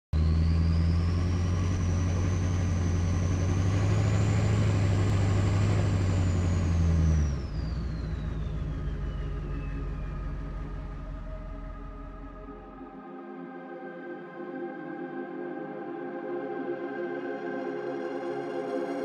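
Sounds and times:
engine running: 0.2s - 12.8s.

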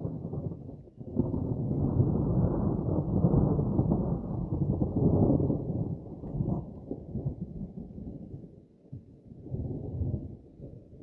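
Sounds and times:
rolling thunder: 0.0s - 8.5s.

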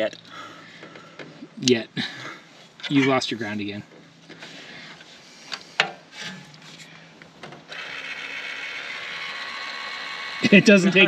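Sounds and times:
actuator motor whirring: 7.6s - 11.0s.

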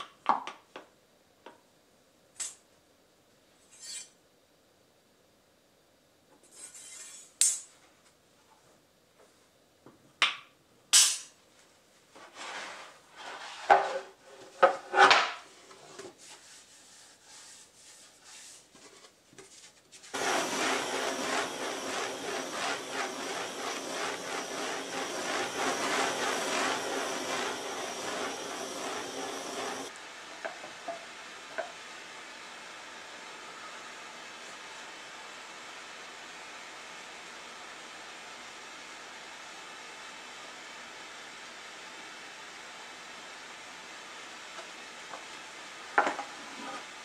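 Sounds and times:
propane torch hissing: 20.1s - 47.0s.

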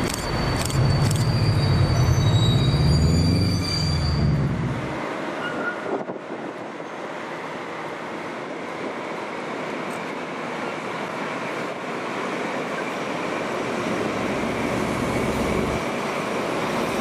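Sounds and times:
train wheels clicking: 0.0s - 1.8s
wheels squealing on rails: 0.0s - 6.2s, 12.4s - 17.0s
diesel locomotive engine: 0.0s - 17.0s.

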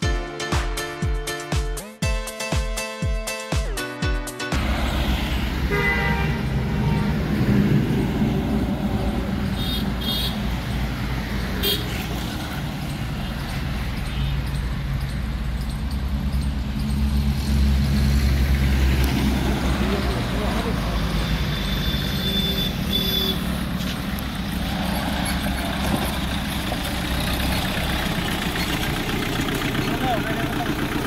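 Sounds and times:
highway traffic passing: 4.5s - 31.0s
vehicle horn sounding: 5.6s - 7.5s, 9.4s - 10.5s, 11.6s - 12.1s, 21.2s - 23.6s
short high horn toots: 5.7s - 7.3s, 21.3s - 23.5s.

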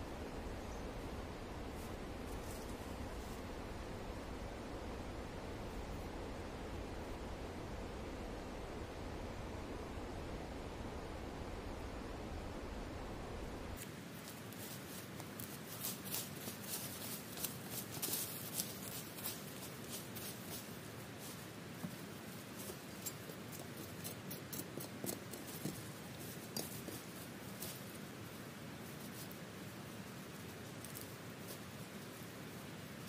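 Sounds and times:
dry leaves crackling underfoot: 13.8s - 24.1s.

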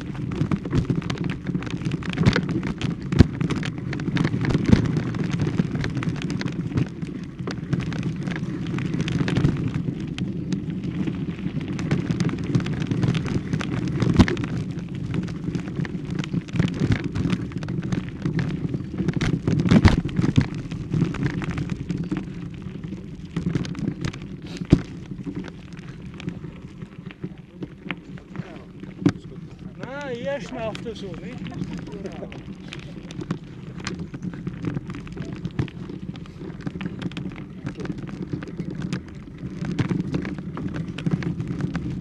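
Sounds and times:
footsteps: 11.8s - 42.0s.

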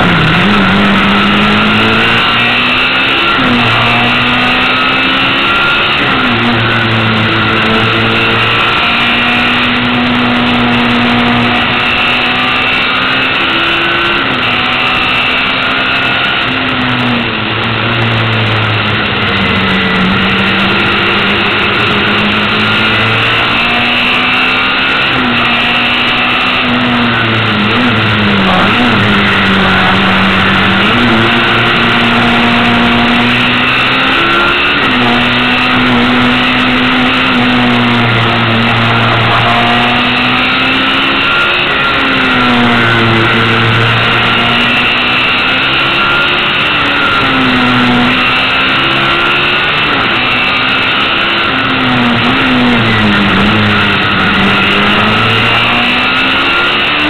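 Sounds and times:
racing car engine shifting gears: 0.0s - 57.0s.

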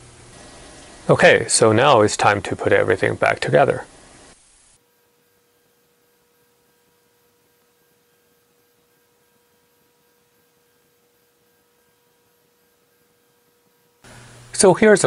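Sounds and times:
low hiss: 0.0s - 15.0s
faint steady tone: 4.7s - 14.5s.

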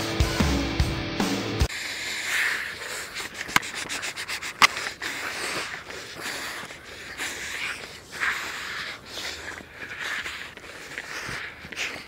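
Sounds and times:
cloth rubbing on microphone: 2.3s - 6.5s.

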